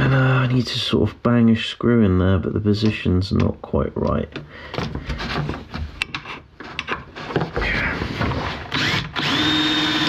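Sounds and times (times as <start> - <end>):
drill driving screw: 8.7 - 10.0.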